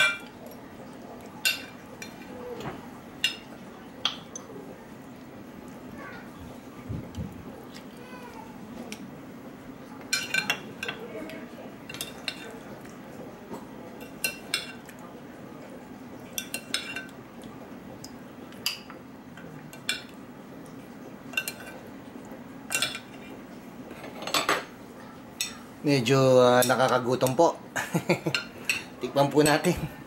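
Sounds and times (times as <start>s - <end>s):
metal spoon clinking on ceramic bowls: 10.1s - 12.6s, 14.0s - 14.9s, 16.4s - 17.2s, 21.3s - 21.8s, 22.7s - 23.2s.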